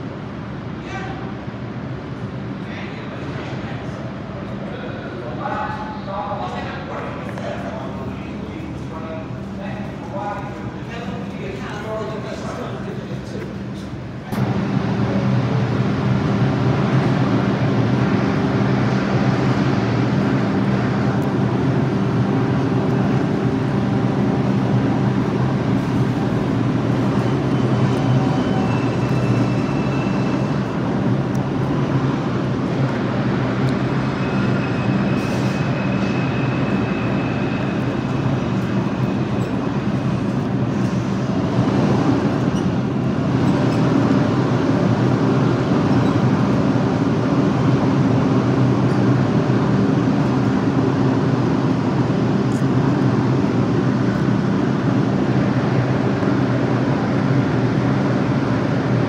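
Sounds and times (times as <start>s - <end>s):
subway train low drone: 0.0s - 59.0s
faint high whine: 14.2s - 40.7s.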